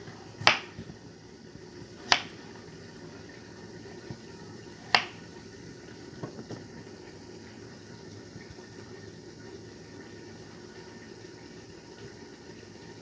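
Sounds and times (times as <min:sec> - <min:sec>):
knife cutting potato on board: 0:00.1 - 0:00.8, 0:02.0 - 0:02.4, 0:04.9 - 0:05.2.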